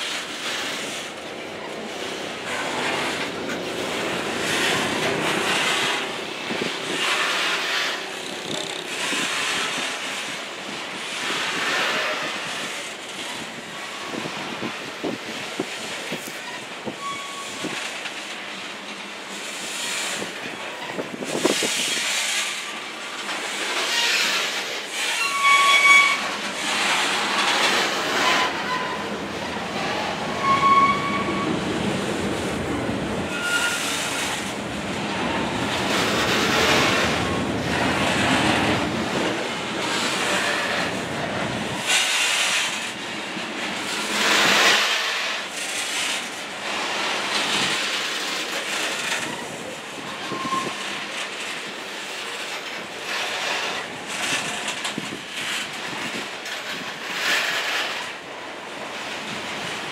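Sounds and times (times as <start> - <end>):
train wheels clattering on rails: 0.0 - 59.9
high-pitched wheel squeals: 16.5 - 17.8, 25.1 - 26.3, 30.4 - 31.6, 33.3 - 34.2, 50.2 - 50.8.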